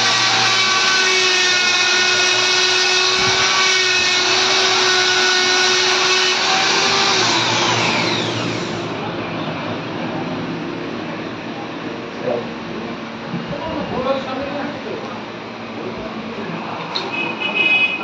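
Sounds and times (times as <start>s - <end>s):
angle grinder whining: 0.0s - 9.1s.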